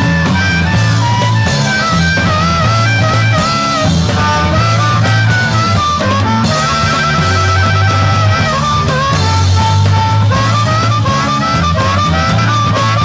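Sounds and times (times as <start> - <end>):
drums: 0.0 - 13.0
electric bass: 0.0 - 13.0
wavering lead guitar line: 0.0 - 13.0.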